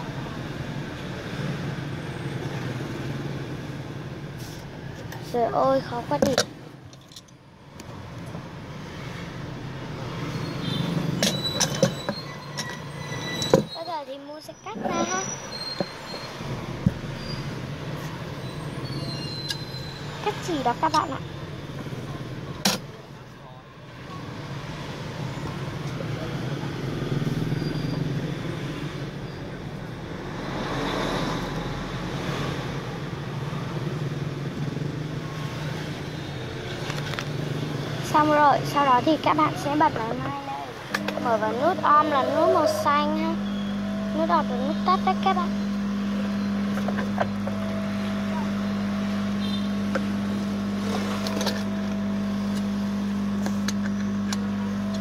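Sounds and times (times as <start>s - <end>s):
low motor hum: 23.9s - 55.0s.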